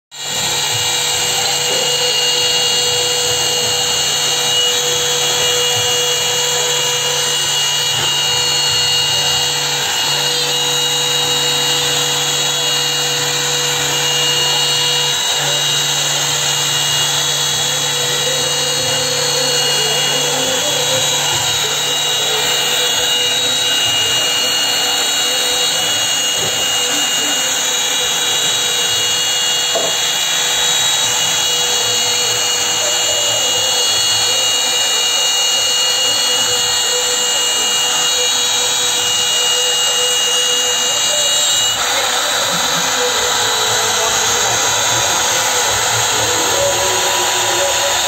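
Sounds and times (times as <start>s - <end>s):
router bit cutting wood: 0.0s - 48.0s
router spindle high whine: 0.1s - 48.0s.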